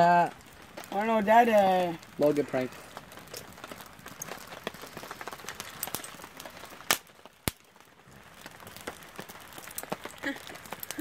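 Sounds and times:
campfire crackling: 0.0s - 11.0s
loud sharp pops: 3.2s - 7.9s.

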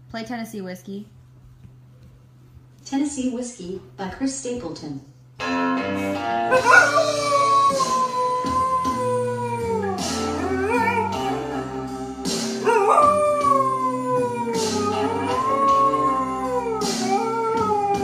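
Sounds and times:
music: 3.7s - 18.0s
dog howling: 6.5s - 18.0s.

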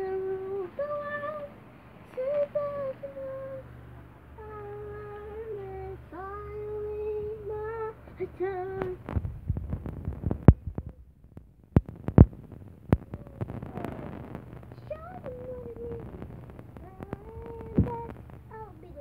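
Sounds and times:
girl singing long notes: 0.0s - 3.7s, 4.4s - 9.0s, 14.7s - 19.0s.

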